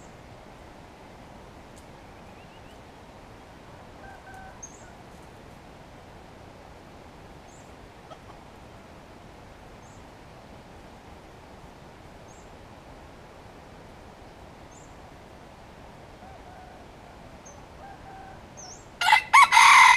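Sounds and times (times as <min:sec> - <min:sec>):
forest ambience: 0:00.0 - 0:19.9
faint high chirp: 0:02.0 - 0:02.8.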